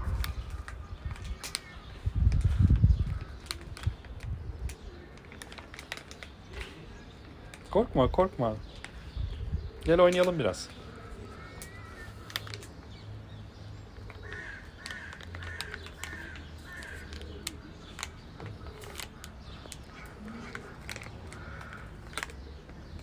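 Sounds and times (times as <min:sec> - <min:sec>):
bird cawing: 0:10.8 - 0:12.6, 0:14.1 - 0:17.6, 0:18.6 - 0:22.6.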